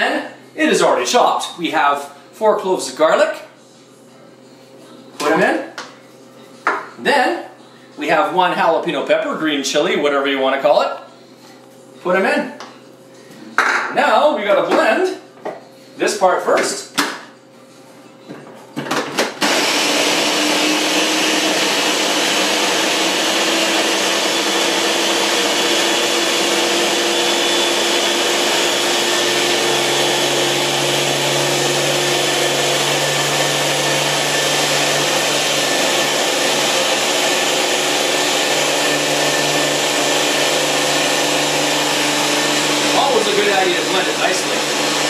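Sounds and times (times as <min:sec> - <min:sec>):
electric blender running: 0:19.3 - 0:45.0.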